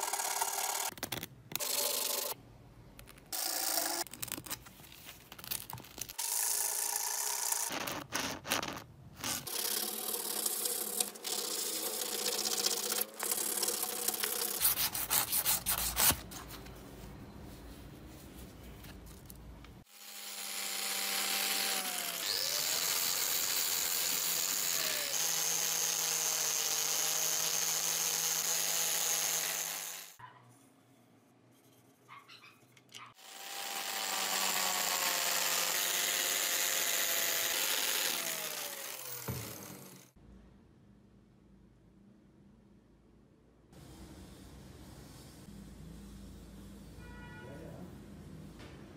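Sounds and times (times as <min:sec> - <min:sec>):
sandpaper rubbing on steel: 0:14.6 - 0:16.2.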